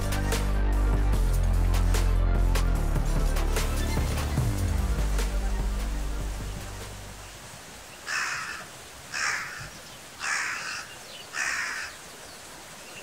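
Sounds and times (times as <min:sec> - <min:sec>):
crow cawing: 0:08.0 - 0:12.0.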